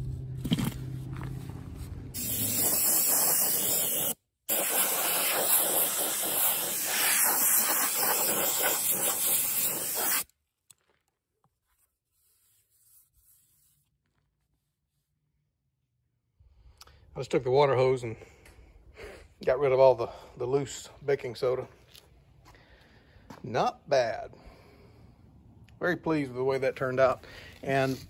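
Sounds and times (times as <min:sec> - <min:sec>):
soda blaster hissing: 0:02.2 - 0:10.3.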